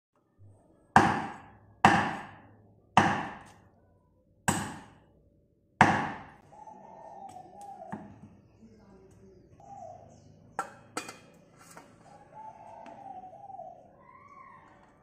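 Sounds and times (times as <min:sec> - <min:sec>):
meat cleaver chopping on wood: 0:01.0 - 0:02.4, 0:03.0 - 0:03.6, 0:04.5 - 0:04.9, 0:05.8 - 0:06.3.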